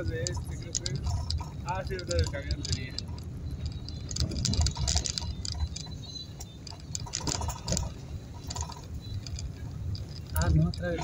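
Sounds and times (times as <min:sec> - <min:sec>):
car driving slowly: 0:00.0 - 0:11.0
clicks and rattles: 0:00.0 - 0:11.0.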